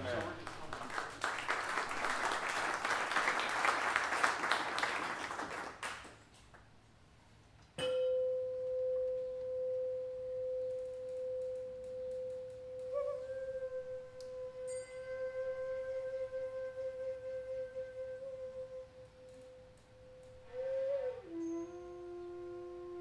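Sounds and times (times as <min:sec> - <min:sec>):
applause: 0:00.0 - 0:06.3
singing bowl ringing: 0:07.8 - 0:12.8, 0:14.6 - 0:15.4.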